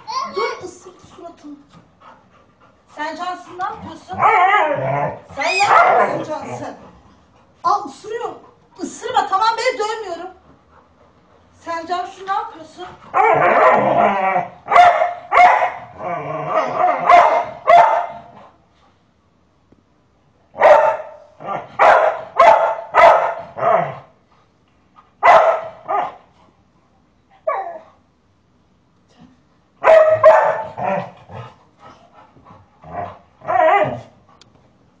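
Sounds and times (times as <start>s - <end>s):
dog yelp: 5.4s - 6.3s, 16.6s - 18.1s, 21.8s - 23.7s, 25.2s - 26.1s, 29.8s - 30.7s
dog barking: 5.6s - 6.3s, 13.1s - 13.9s, 14.7s - 15.9s, 16.6s - 18.3s, 20.6s - 24.0s, 25.2s - 26.2s, 29.8s - 31.1s.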